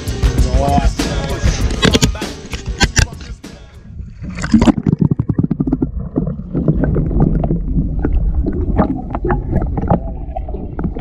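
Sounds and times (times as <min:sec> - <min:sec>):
underwater clicks and gurgles: 0:01.6 - 0:03.4, 0:04.0 - 0:11.0
underwater low rumble: 0:03.8 - 0:11.0.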